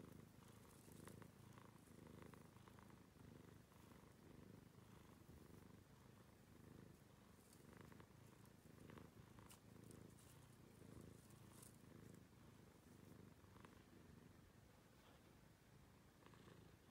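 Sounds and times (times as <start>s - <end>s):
cat purring: 0.0s - 16.9s
faint clicks and rustles: 7.3s - 13.9s.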